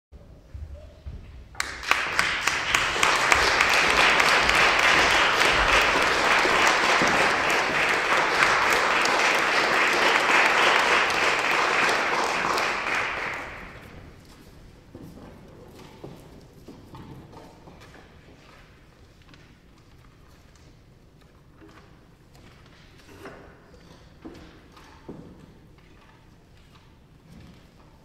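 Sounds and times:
audience applauding: 1.6 - 14.1.

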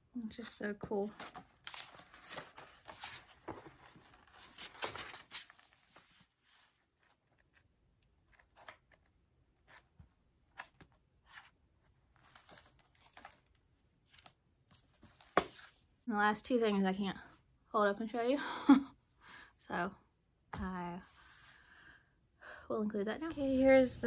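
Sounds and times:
book pages turning: 1.0 - 15.9.

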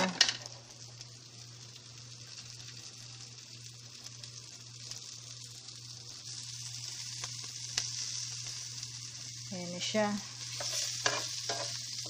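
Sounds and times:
low steady hum: 0.0 - 12.0
vegetables sizzling in butter: 0.0 - 12.0.

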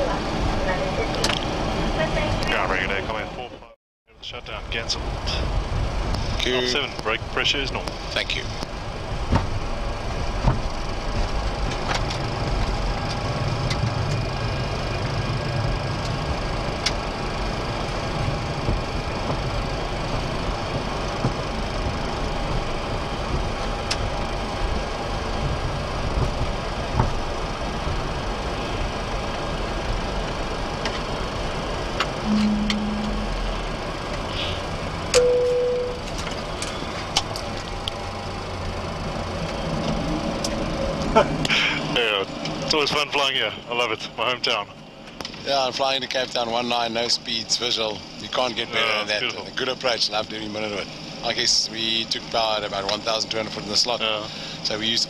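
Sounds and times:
jet engines idling in cockpit: 0.0 - 55.0
brief steady tone: 32.2 - 33.5, 35.1 - 36.2.

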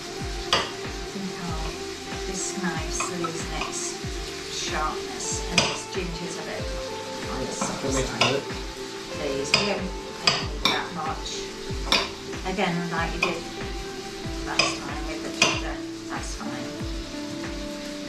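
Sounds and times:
background music with steady beat: 0.0 - 18.0.

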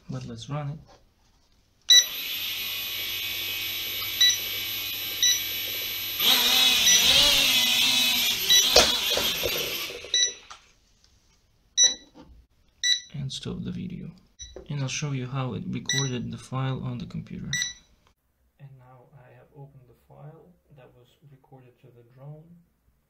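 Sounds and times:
quadcopter motors and propellers: 2.0 - 10.2
short electronic beeps: 4.1 - 4.5, 5.2 - 5.5, 6.8 - 7.2, 8.5 - 8.9, 11.8 - 12.1, 12.8 - 13.1, 15.9 - 16.1, 17.5 - 17.9.

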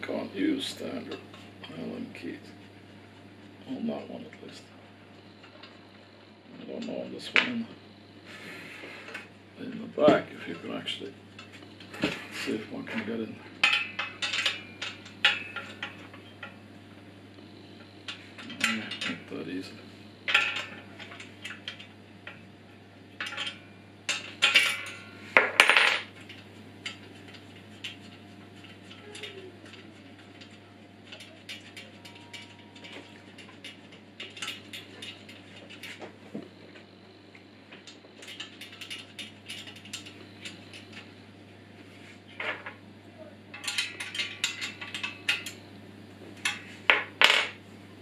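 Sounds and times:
metal tools clinking on metal: 9.0 - 16.6, 18.1 - 22.4, 23.2 - 36.1, 37.8 - 41.2, 43.5 - 45.7, 46.4 - 47.6.

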